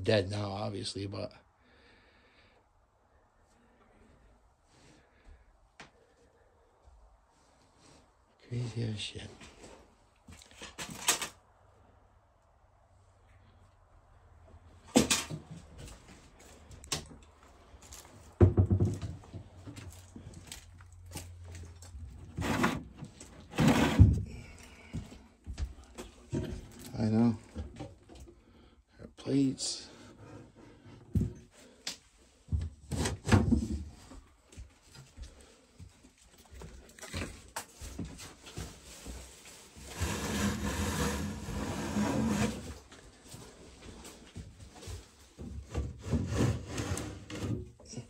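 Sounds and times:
wooden cabinet doors knocking: 18.4s - 19.1s
cabinet drawer sliding and scraping: 22.2s - 24.3s, 39.8s - 42.9s, 45.7s - 47.8s.

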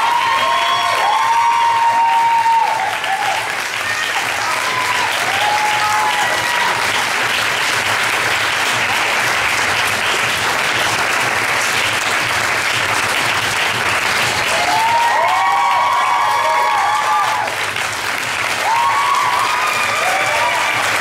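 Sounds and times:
short cheer: 0.0s - 7.0s, 14.5s - 17.6s, 18.6s - 21.0s
audience applauding: 0.0s - 21.0s.

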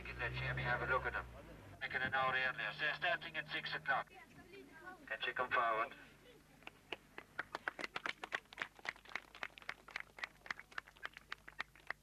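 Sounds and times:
small crowd clapping: 6.6s - 12.0s.

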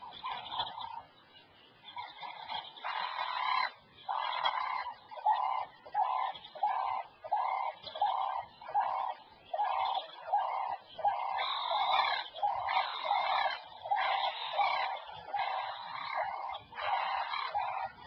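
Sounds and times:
animal calling: 1.8s - 18.0s.

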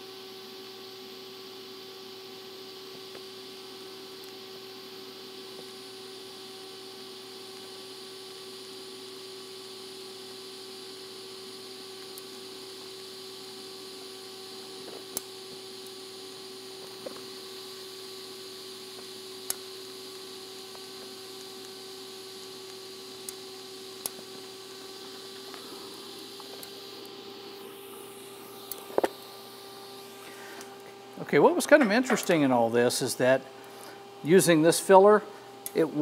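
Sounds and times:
welding arc hissing: 1.4s - 36.0s
constant hum: 2.9s - 36.0s.

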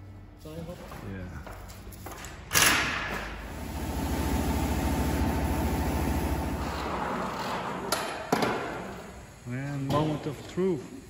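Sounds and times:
pneumatic impact wrench: 2.5s - 4.5s.

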